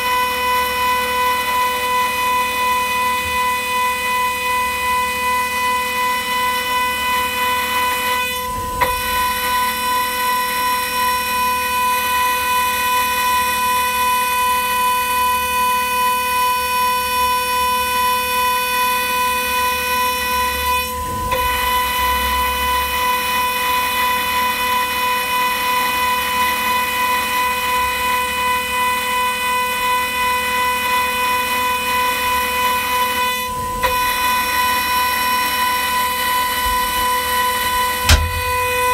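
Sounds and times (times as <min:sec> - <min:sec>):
milling machine spindle whining: 0:32.6 - 0:38.9.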